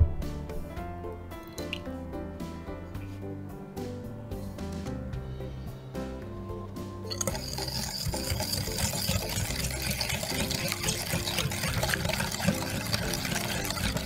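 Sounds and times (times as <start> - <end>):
whisk clicking against glass bowl: 7.1 - 14.0.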